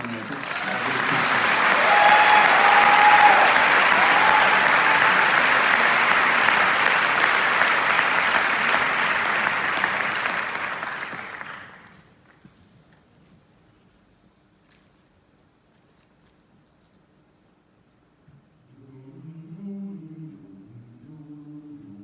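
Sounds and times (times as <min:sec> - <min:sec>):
audience cheering: 0:00.0 - 0:11.8
audience applauding: 0:00.0 - 0:12.1.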